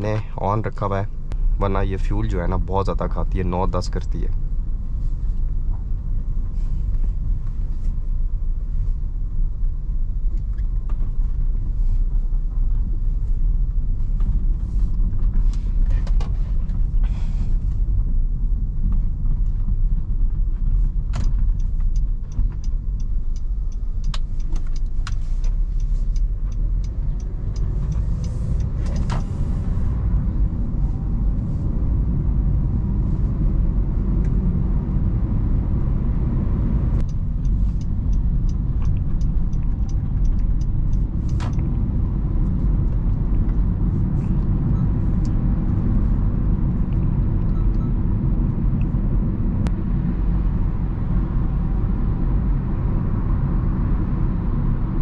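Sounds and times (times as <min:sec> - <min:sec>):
car engine and road rumble: 0:00.0 - 0:55.0.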